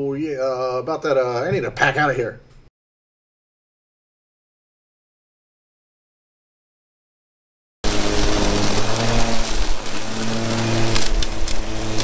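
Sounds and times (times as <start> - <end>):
blade cutting dry weeds: 7.8 - 12.0
cordless mower humming: 7.8 - 12.0.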